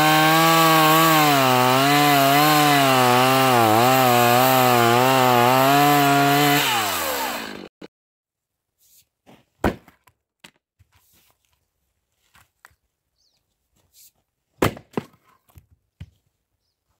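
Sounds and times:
axe chopping firewood: 0:09.6 - 0:10.6, 0:14.6 - 0:15.2.

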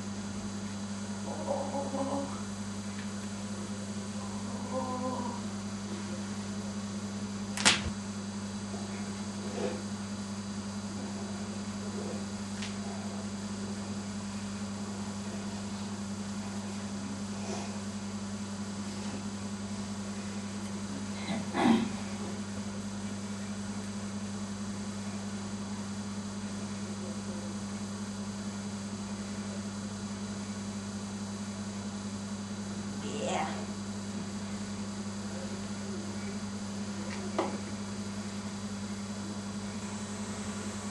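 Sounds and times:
electrical hum: 0:00.0 - 0:40.9
sharp snap: 0:07.5 - 0:08.0.

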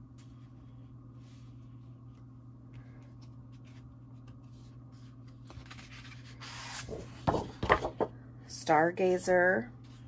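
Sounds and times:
paper sliding: 0:05.5 - 0:07.1.

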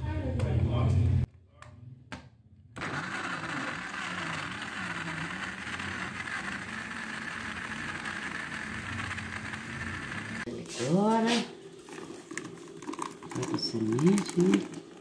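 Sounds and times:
electric blender running: 0:02.8 - 0:10.5.

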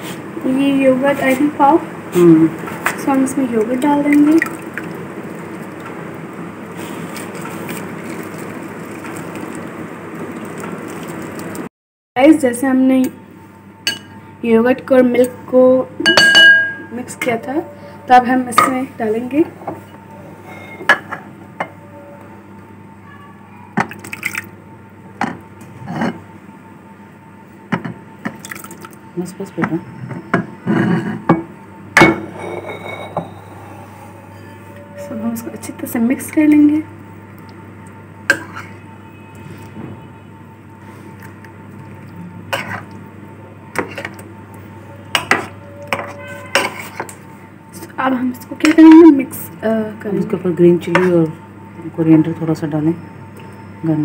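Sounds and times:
thick liquid slopping and squelching: 0:06.8 - 0:09.7
dishware clinks: 0:16.0 - 0:16.9, 0:32.0 - 0:33.3
spoon clinking against bowl: 0:16.0 - 0:16.9
spoon stirring in a bowl: 0:42.5 - 0:43.0, 0:43.7 - 0:44.3, 0:45.1 - 0:47.2.

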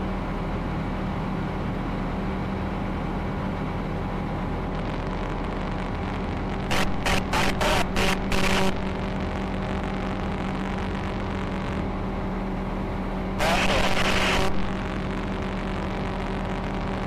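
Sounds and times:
aircraft engine droning: 0:00.0 - 0:17.0
intercom hiss bursts: 0:06.7 - 0:09.0, 0:13.4 - 0:15.4.

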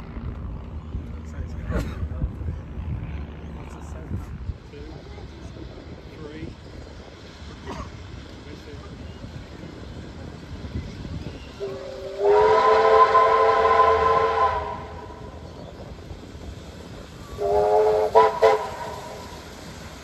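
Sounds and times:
steam locomotive whistle: 0:11.6 - 0:15.4, 0:17.2 - 0:19.4.

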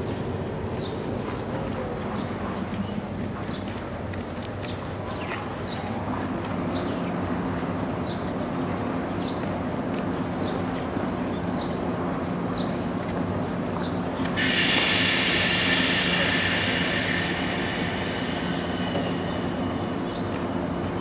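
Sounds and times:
electric train humming: 0:11.7 - 0:21.0
loud high sustained tone: 0:14.4 - 0:21.0.

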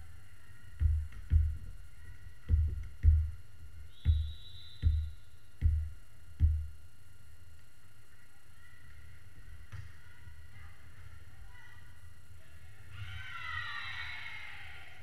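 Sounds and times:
volleyball bouncing on gym floor: 0:00.8 - 0:06.8
referee's whistle: 0:03.8 - 0:05.3.

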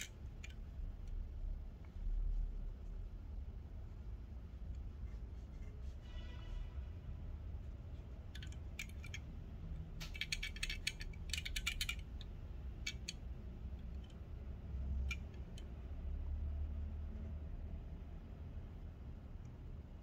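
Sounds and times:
toy car clicking and rattling: 0:00.0 - 0:00.7, 0:08.3 - 0:13.2.

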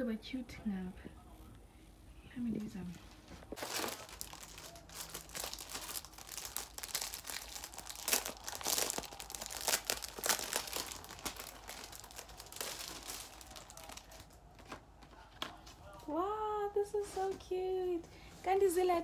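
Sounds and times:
plastic packaging crinkling: 0:03.4 - 0:14.9.

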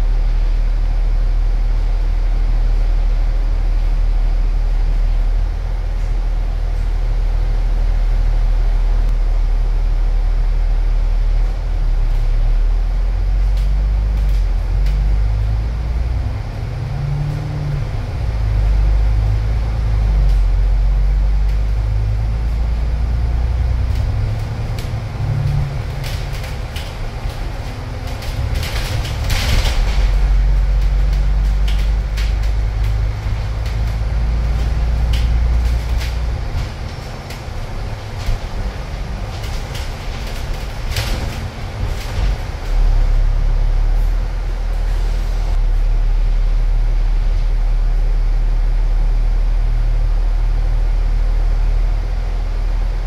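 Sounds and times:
bus engine drone: 0:00.0 - 0:53.0
clicks and rattles in cabin: 0:23.9 - 0:43.1.

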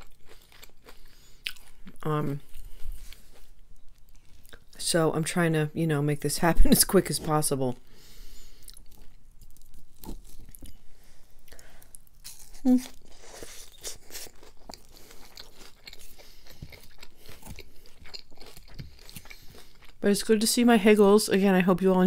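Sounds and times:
chewing crunchy salad: 0:00.0 - 0:04.8, 0:08.2 - 0:10.8, 0:11.4 - 0:20.0.

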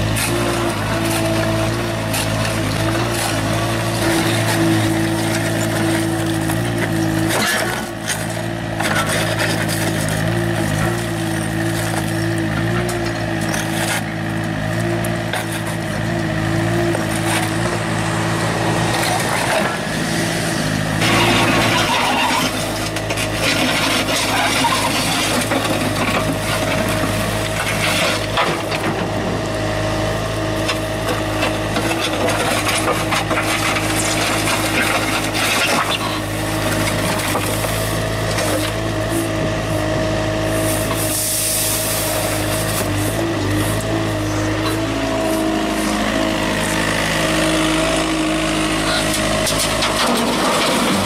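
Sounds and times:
asphalt chunks clattering: 0:00.0 - 0:17.9, 0:20.6 - 0:29.2, 0:30.5 - 0:39.4, 0:48.8 - 0:51.0
bucket scraping asphalt: 0:00.0 - 0:29.2, 0:30.4 - 0:51.0
diesel engine whining: 0:00.0 - 0:51.0.

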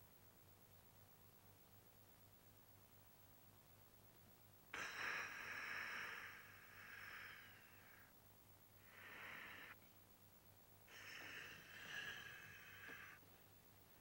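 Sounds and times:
person breathing hissing breaths: 0:04.7 - 0:08.2, 0:08.8 - 0:09.8, 0:10.9 - 0:13.4.

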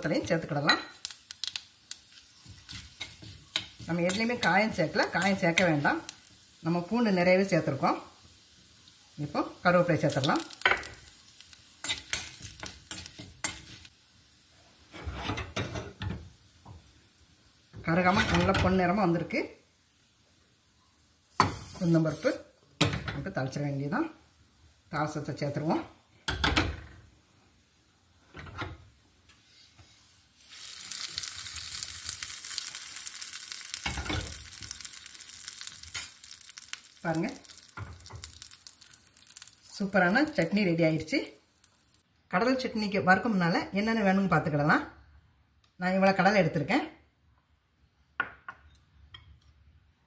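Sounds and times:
seeds sizzling in oil: 0:00.0 - 0:26.4, 0:27.2 - 0:42.4
spoon scraping a pan: 0:02.1 - 0:05.9, 0:11.8 - 0:13.9, 0:14.9 - 0:16.1.

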